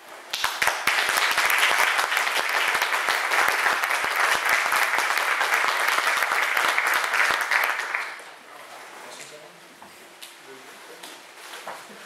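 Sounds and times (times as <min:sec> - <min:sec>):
audience applauding: 0:00.3 - 0:08.4.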